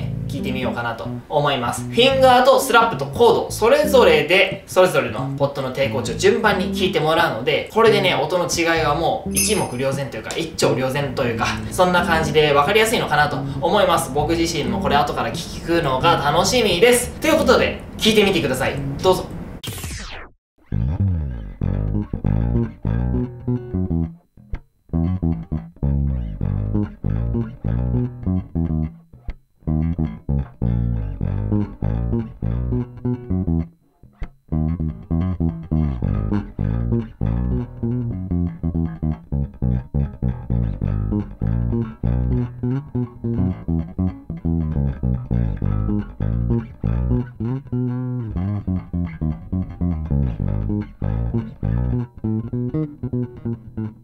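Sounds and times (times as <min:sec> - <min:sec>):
fingerstyle electric bass: 0:00.0 - 0:54.0.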